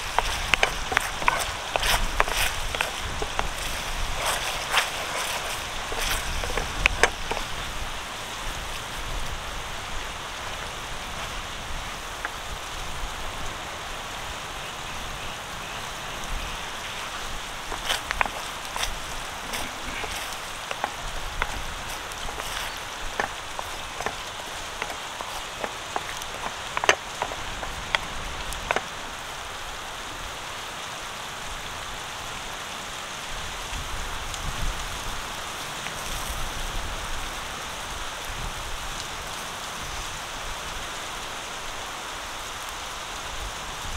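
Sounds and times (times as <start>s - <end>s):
sharp pops and clicks: 0.0s - 7.6s, 17.1s - 28.9s.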